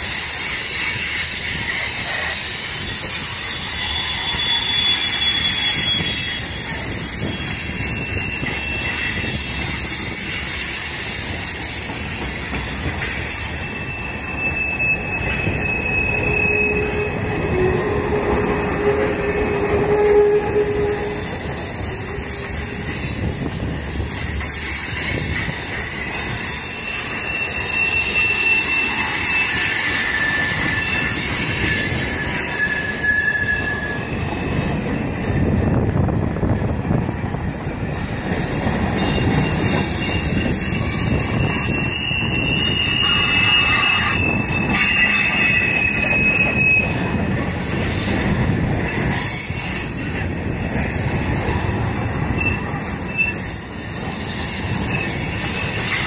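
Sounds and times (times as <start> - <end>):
wheel squeals: 0.0 - 36.0, 37.3 - 56.0
freight train wheels rumbling: 0.0 - 56.0.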